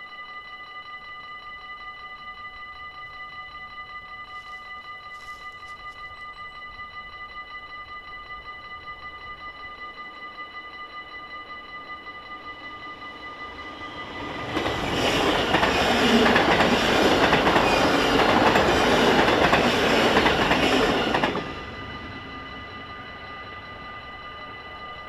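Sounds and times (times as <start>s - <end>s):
level crossing warning bells: 0.0s - 25.0s
train wheels on rails: 12.2s - 25.0s.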